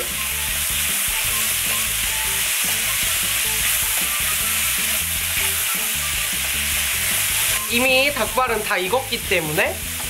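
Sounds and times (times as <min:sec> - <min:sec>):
food sizzling in a frying pan: 0:00.0 - 0:10.0
spatula stirring in a pan: 0:00.4 - 0:07.6.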